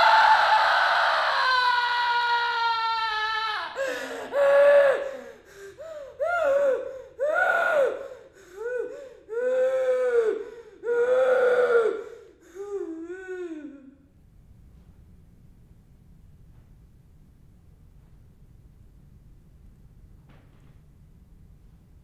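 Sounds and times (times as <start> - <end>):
woman wailing and sobbing: 0.0 - 14.0.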